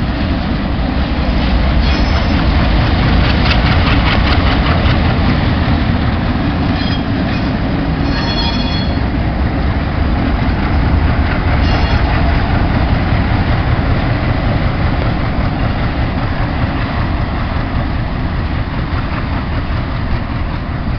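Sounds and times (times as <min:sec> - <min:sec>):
diesel locomotives running past: 0:00.0 - 0:20.9
high-pitched wheel squeals: 0:01.8 - 0:02.4, 0:06.7 - 0:09.1, 0:11.6 - 0:12.1.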